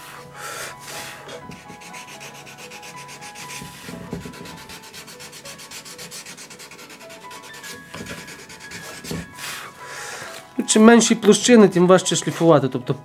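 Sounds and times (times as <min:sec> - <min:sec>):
sandpaper scratching on wood: 0:00.9 - 0:09.5.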